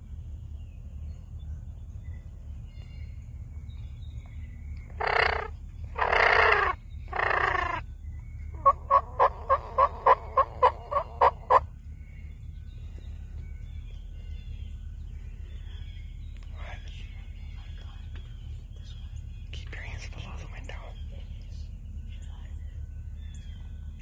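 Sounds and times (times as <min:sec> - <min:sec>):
turkey gobbling: 0:05.0 - 0:07.8, 0:08.6 - 0:11.7
turkey yelps: 0:05.0 - 0:07.8, 0:08.6 - 0:11.6.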